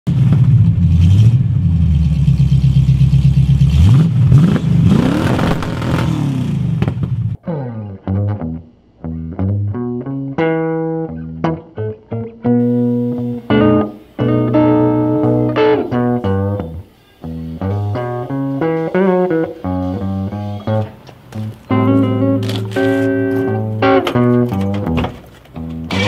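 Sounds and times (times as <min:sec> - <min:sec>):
car engine revving: 0:00.1 - 0:07.4, 0:25.7 - 0:26.0
plucked guitar music: 0:07.4 - 0:26.0.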